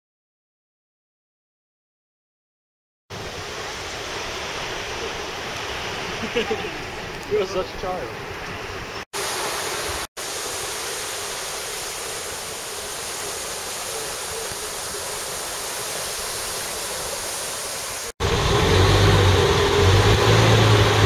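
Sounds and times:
wind and road noise in bus: 18.2s - 21.0s.

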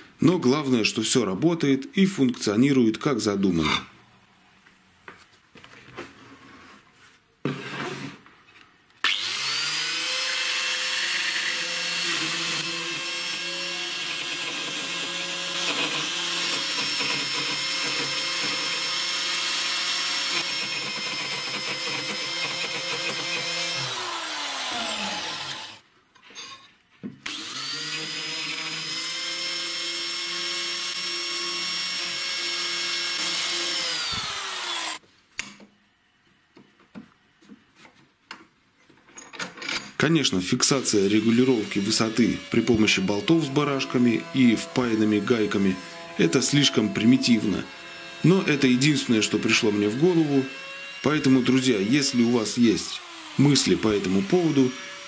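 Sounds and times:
router cutting wood: 9.0s - 25.8s, 27.2s - 35.0s, 40.5s - 55.0s
router motor whine: 9.0s - 25.8s, 27.2s - 35.0s, 40.8s - 55.0s.

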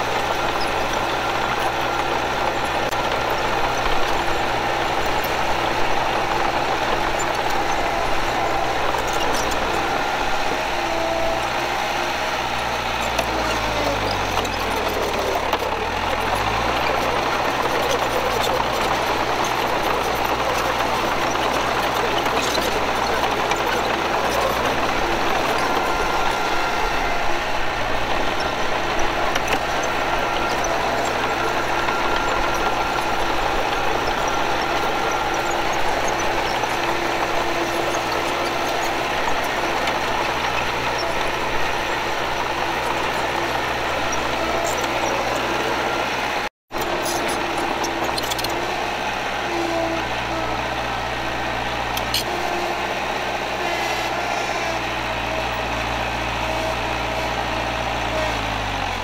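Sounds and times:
bulldozer diesel engine running: 0.0s - 59.0s.

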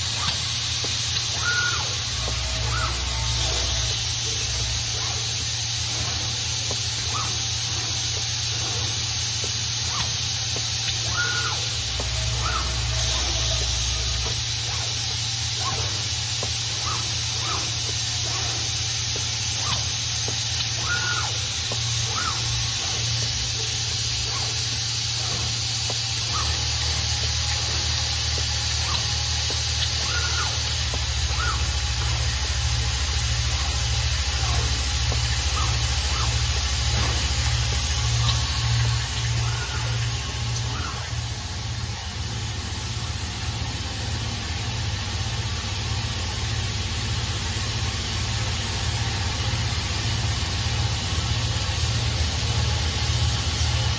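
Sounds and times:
low pulsing hum: 0.0s - 53.9s
machine hiss: 0.0s - 53.9s.

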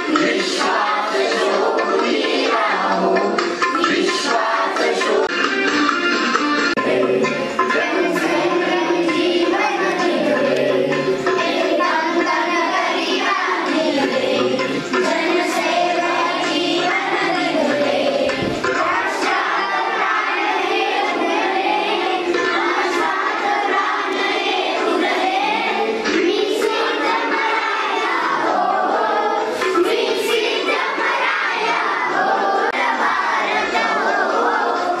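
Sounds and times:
children singing in unison: 0.0s - 35.0s.

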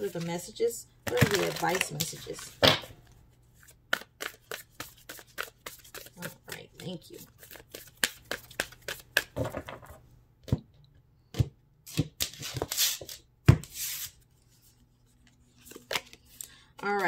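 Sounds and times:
cards shuffled by hand: 1.1s - 2.4s, 3.6s - 9.9s, 15.2s - 17.0s
cards sliding: 15.6s - 16.5s.

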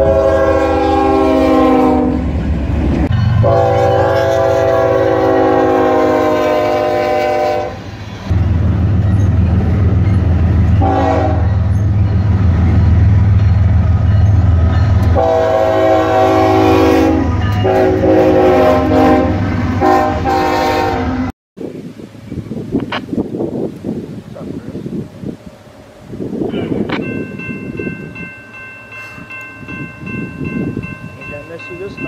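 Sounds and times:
locomotive air horn blasts: 0.0s - 2.3s, 3.4s - 7.9s, 10.8s - 11.6s, 15.1s - 21.3s
freight train rumbling past: 0.0s - 32.0s.

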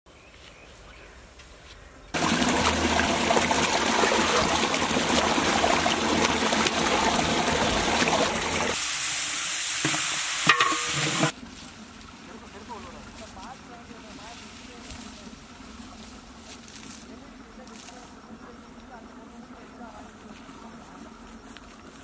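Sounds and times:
chicken frying in pot: 2.2s - 11.4s.

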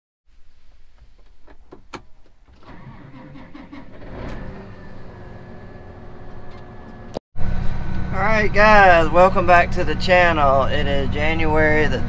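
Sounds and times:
clicks and knocks from controls: 1.0s - 3.0s
tractor diesel engine starting and idling: 2.4s - 12.0s.

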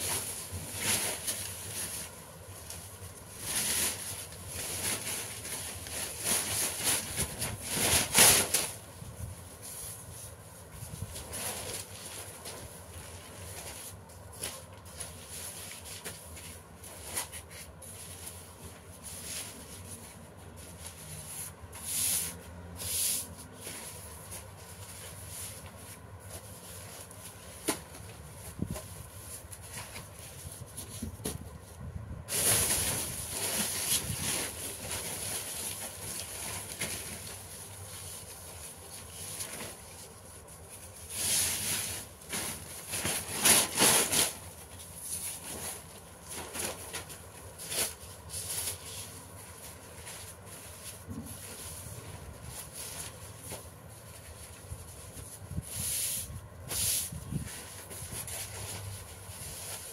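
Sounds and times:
paper rustling: 23.0s - 59.9s.

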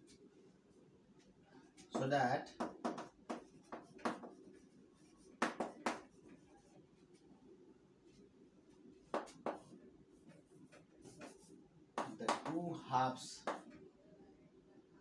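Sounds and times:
chalk tapping and scratching: 1.7s - 7.3s, 8.1s - 12.6s, 13.4s - 13.8s.

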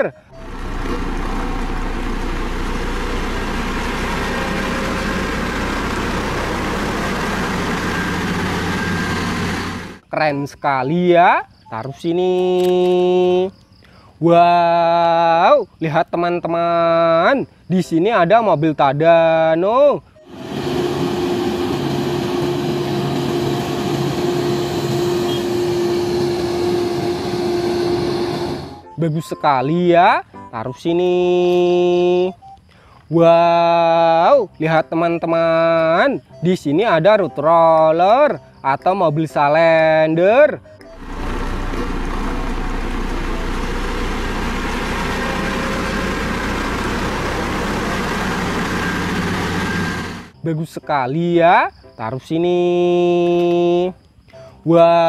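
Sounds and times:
constant hum: 0.0s - 10.1s, 40.8s - 50.3s
road roller diesel engine: 0.0s - 10.1s, 20.1s - 28.9s, 40.6s - 50.4s.

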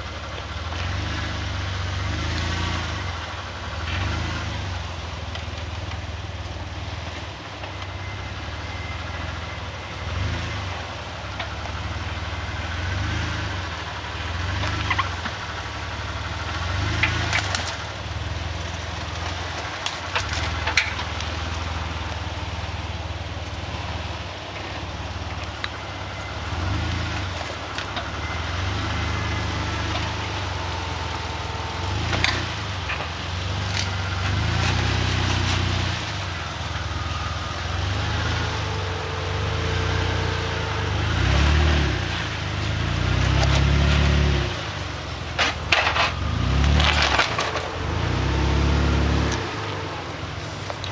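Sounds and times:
off-road engine revving: 0.0s - 50.9s
sharp cracks and crunches: 16.8s - 21.8s, 29.0s - 36.2s, 41.2s - 48.4s.

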